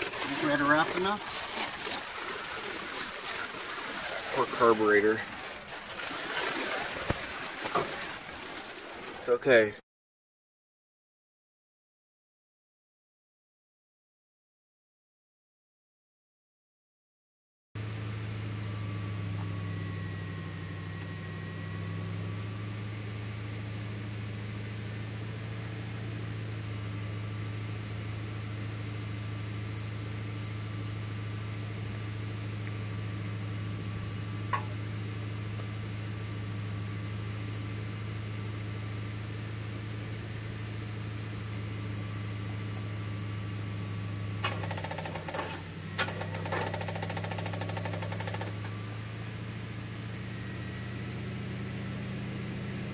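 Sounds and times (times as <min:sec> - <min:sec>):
engine idling: 0:17.8 - 0:52.9
sharp clicks and rattles: 0:44.4 - 0:48.7.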